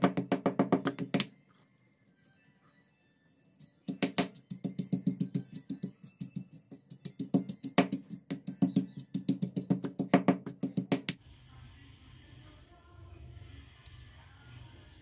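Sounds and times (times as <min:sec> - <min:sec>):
pestle pounding in stone mortar: 0:00.0 - 0:01.2, 0:03.9 - 0:11.1.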